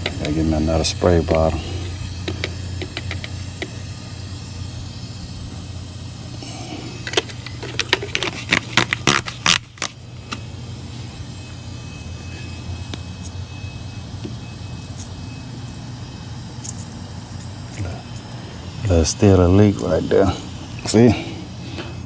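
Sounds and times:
low mechanical hum: 0:00.0 - 0:22.0
spray bottle squirting: 0:01.6 - 0:05.3, 0:06.2 - 0:10.4, 0:14.9 - 0:19.0.

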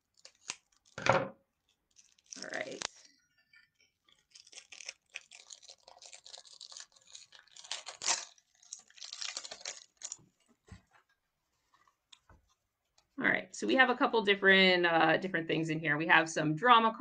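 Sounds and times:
plastic wrap crinkling: 0:00.0 - 0:01.0, 0:01.6 - 0:12.6.

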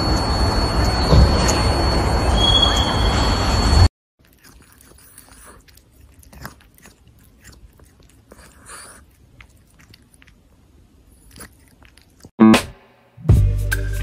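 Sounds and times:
cat chewing: 0:04.2 - 0:12.4.

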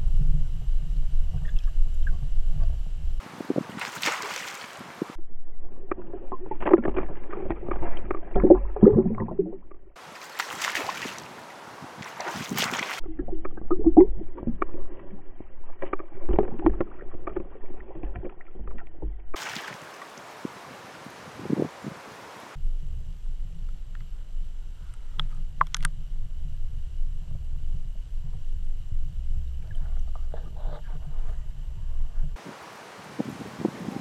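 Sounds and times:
muffled underwater rumble: 0:00.0 - 0:03.2, 0:05.2 - 0:10.0, 0:13.0 - 0:19.4, 0:22.6 - 0:32.4
wind: 0:00.0 - 0:34.0
flowing water hiss: 0:03.2 - 0:05.2, 0:10.0 - 0:13.0, 0:19.4 - 0:22.6, 0:32.4 - 0:34.0
underwater clicks and gurgles: 0:05.0 - 0:10.6, 0:12.2 - 0:19.4, 0:24.9 - 0:26.0, 0:28.2 - 0:32.4.

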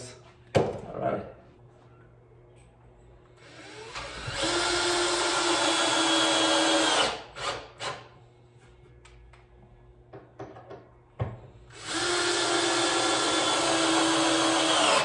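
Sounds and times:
cordless drill whining into wood: 0:03.4 - 0:08.0, 0:11.7 - 0:15.0.

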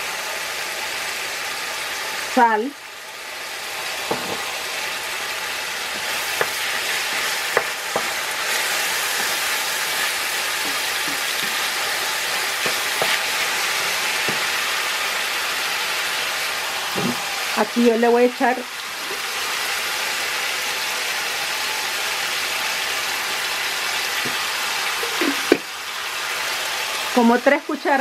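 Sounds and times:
meat sizzling in a frying pan: 0:00.0 - 0:28.0
spatula scraping a pan: 0:05.9 - 0:14.6.

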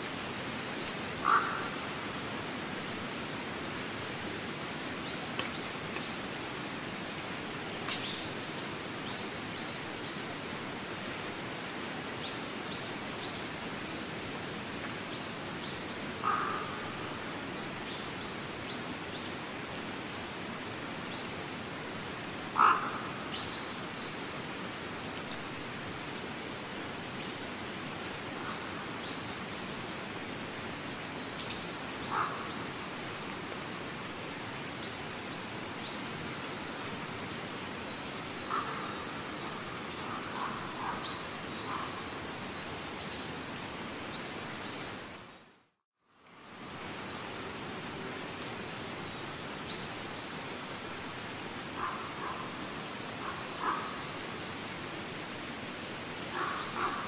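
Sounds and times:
steady background hiss: 0:00.0 - 0:57.0
short low bird calls: 0:22.6 - 0:23.3.

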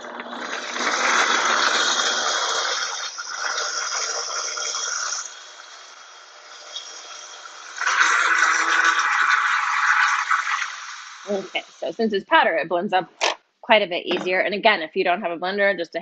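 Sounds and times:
blender whirring liquid: 0:00.0 - 0:11.8.

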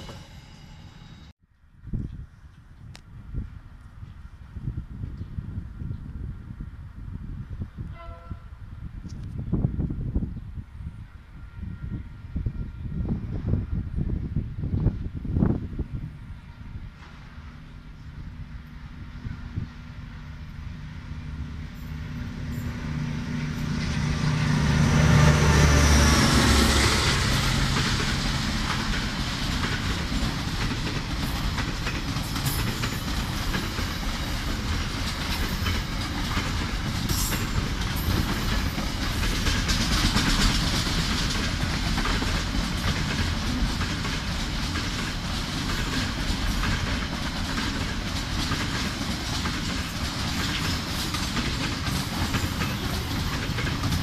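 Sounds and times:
diesel locomotive engine: 0:00.0 - 0:01.3, 0:02.5 - 0:54.0
freight wagons rumbling on rails: 0:14.2 - 0:54.0.

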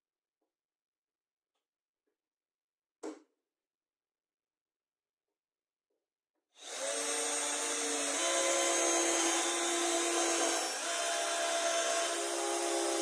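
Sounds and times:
electric drill drilling into plywood: 0:06.6 - 0:13.0.

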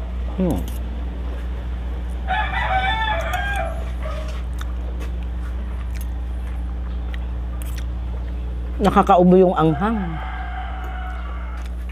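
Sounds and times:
rooster crowing: 0:02.2 - 0:04.4, 0:09.6 - 0:11.9.

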